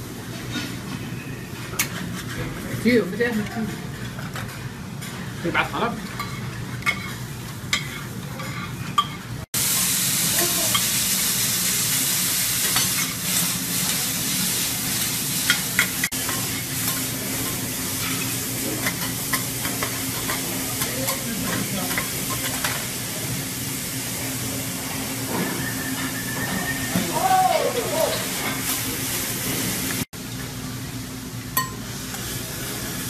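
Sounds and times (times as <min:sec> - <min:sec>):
food sizzling on a griddle: 0:02.9 - 0:08.9, 0:09.5 - 0:30.1, 0:31.8 - 0:33.0
metal spatulas scraping: 0:06.0 - 0:09.2.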